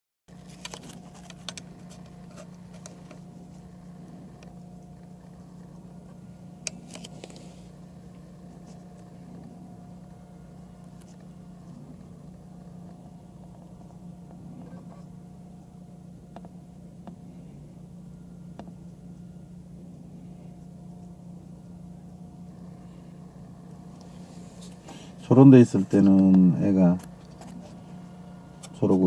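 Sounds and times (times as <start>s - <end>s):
steady low hum: 0.3s - 29.0s
faint high steady tone: 13.2s - 24.4s.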